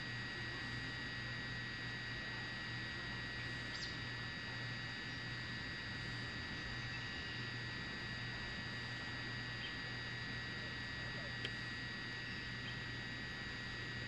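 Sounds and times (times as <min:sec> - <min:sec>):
faint click: 0:11.4 - 0:11.6.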